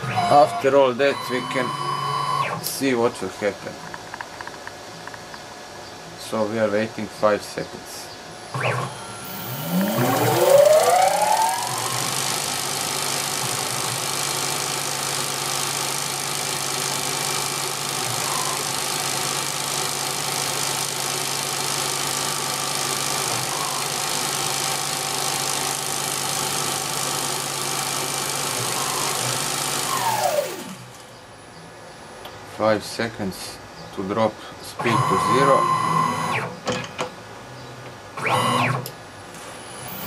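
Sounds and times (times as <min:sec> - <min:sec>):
lathe spindle motor whine: 0:00.0 - 0:02.6, 0:08.5 - 0:31.0, 0:34.8 - 0:36.5.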